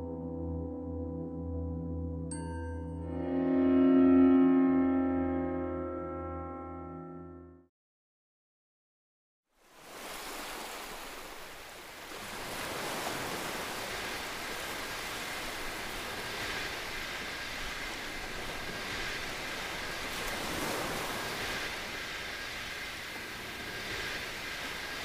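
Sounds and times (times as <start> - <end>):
steady rushing noise: 10.5 - 25.0.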